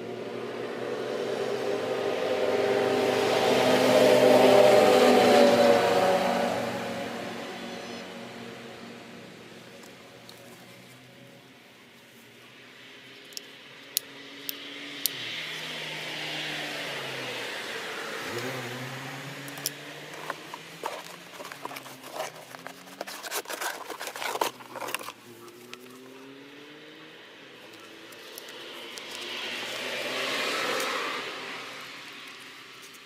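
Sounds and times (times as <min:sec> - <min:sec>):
vehicle passing: 0:00.0 - 0:11.4, 0:14.1 - 0:33.0
paper rustling: 0:20.1 - 0:26.2.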